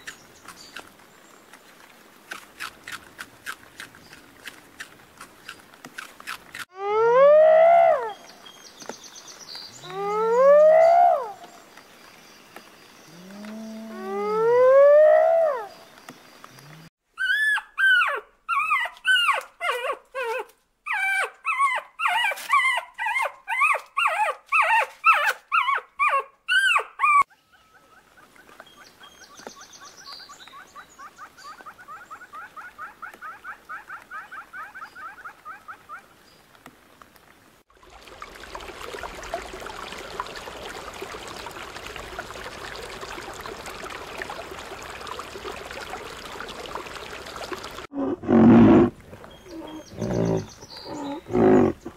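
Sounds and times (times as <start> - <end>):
rushing water: 0.0 - 16.9, 28.2 - 51.9
birds chattering: 49.2 - 51.9.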